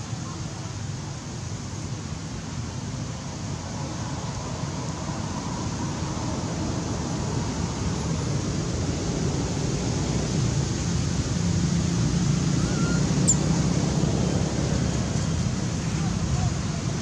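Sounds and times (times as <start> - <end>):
faint high chirp: 12.6 - 13.6.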